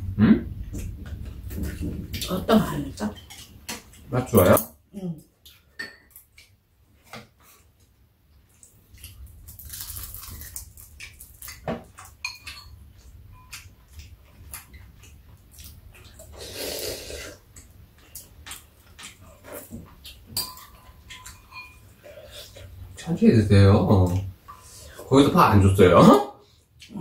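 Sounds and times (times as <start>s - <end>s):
utensils clicking on ceramic bowls: 20.4s - 21.9s.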